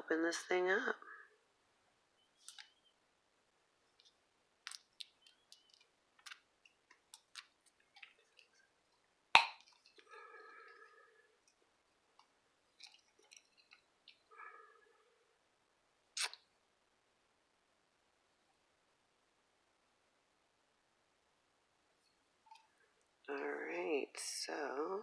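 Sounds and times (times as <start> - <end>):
plastic tube cap clicks and snaps: 9.4 - 9.8.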